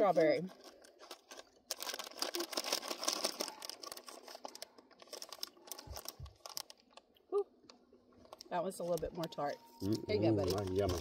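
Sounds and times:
plastic packet crinkling: 0.0 - 7.2, 8.1 - 11.0.

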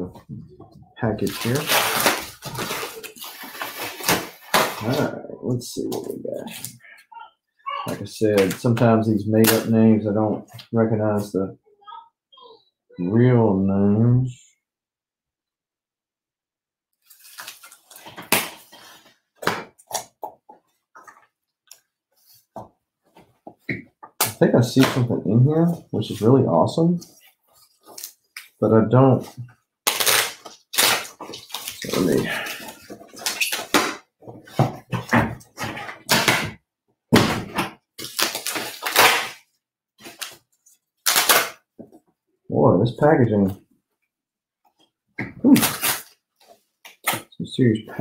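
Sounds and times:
packaging rustling and crinkling: 1.1 - 5.1, 17.0 - 19.2, 29.9 - 36.2.

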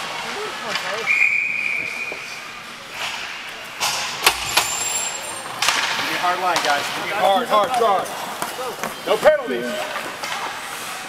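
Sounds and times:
referee's whistle: 1.0 - 2.4.

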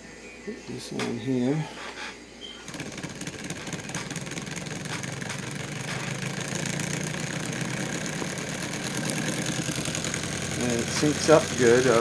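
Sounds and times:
pulse motor whirring and ticking: 2.6 - 12.0.

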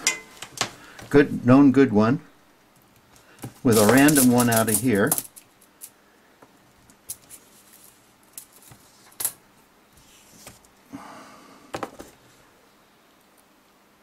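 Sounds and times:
chips rattling onto a table: 3.4 - 5.9.

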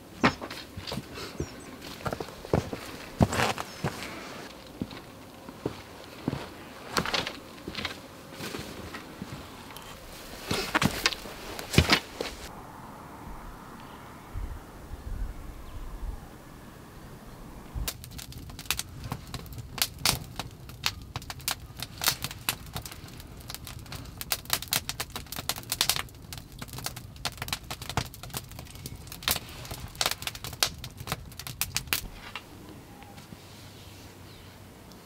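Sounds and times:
campfire crackling: 0.0 - 12.5, 17.6 - 32.8
low rumble: 12.4 - 18.4
sharp fire pops: 17.8 - 32.2.

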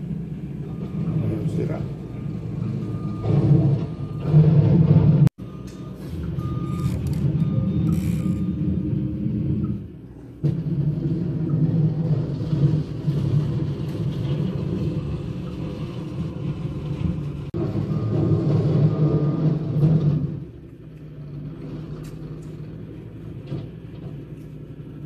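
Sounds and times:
loader engine running: 0.0 - 25.0
reversing alarm beeps: 0.6 - 9.8, 17.6 - 19.8.

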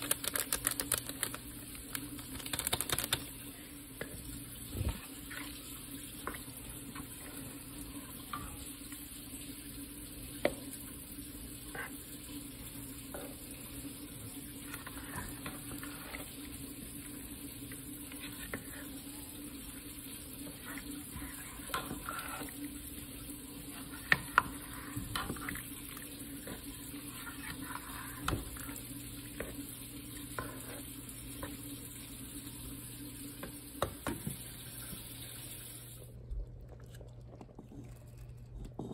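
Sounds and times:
spoon stirring soup sloshing: 11.6 - 31.7.

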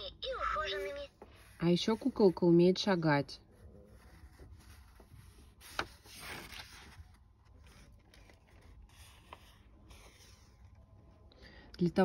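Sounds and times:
paper rustling: 3.5 - 11.0.

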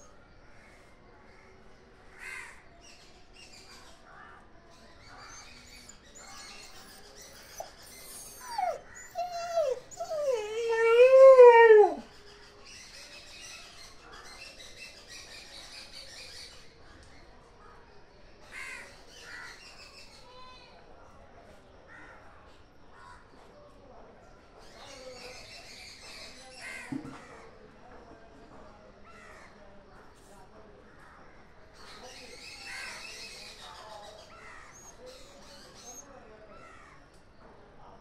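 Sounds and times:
dog yelping and howling: 6.8 - 12.1.

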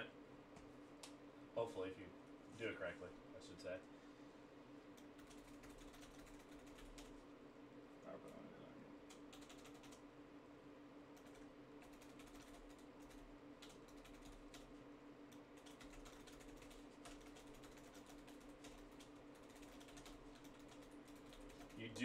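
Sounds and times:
low steady hum: 0.0 - 22.0
computer keyboard typing: 5.0 - 7.2, 9.0 - 10.0, 11.1 - 22.0.

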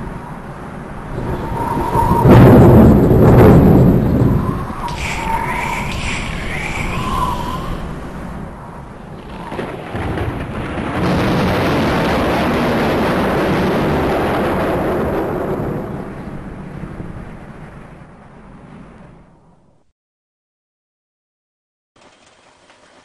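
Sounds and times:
thunder rumbling: 0.0 - 19.6.

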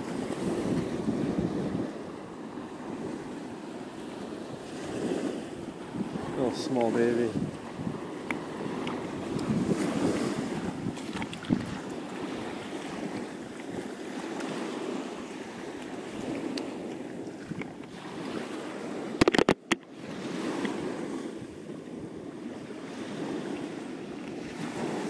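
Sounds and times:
small waves washing onto beach: 0.0 - 25.0
sharp knocks: 19.2 - 19.8.

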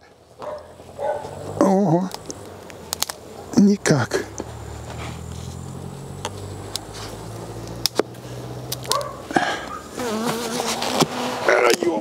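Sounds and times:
honeybees buzzing: 0.7 - 11.7
hive tool prying clicks and cracks: 2.1 - 3.2, 8.7 - 9.1.

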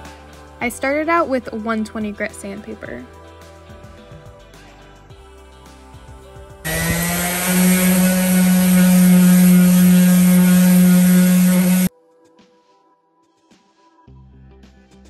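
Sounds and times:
soft background music: 0.0 - 6.7, 11.9 - 15.0
orbital sander running: 6.7 - 11.9
sandpaper hissing on wood: 6.7 - 11.9.

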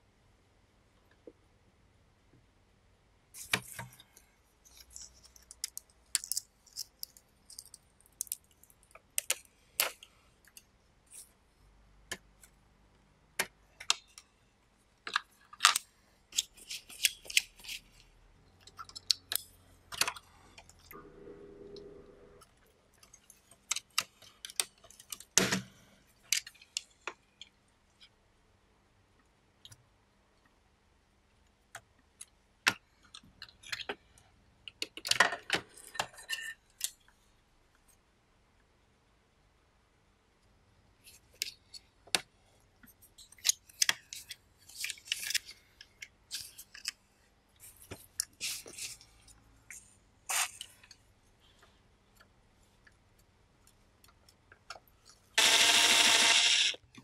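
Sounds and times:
low buzz: 21.0 - 22.5.

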